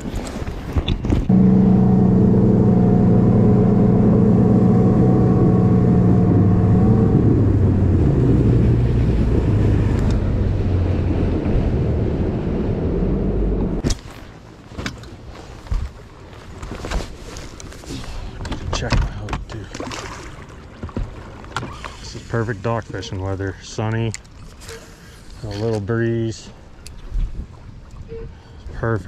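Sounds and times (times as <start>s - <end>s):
outboard motor running: 1.2s - 13.8s.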